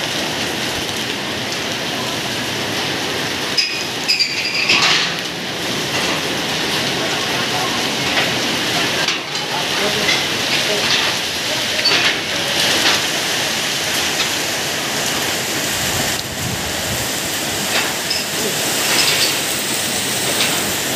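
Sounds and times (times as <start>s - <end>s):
heavy rain pouring: 0.0s - 20.9s
strong wind gusting: 11.2s - 20.9s.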